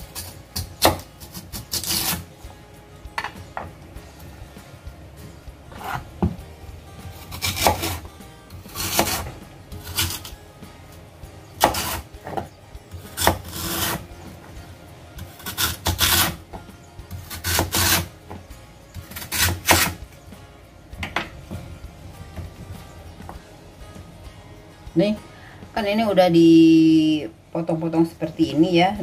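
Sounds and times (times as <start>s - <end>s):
knife slicing on cutting board: 7.3s - 8.0s, 8.7s - 10.3s, 15.4s - 16.4s.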